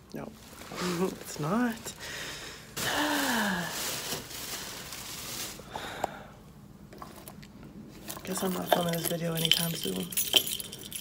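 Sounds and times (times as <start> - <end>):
woman sighing: 2.8 - 3.8.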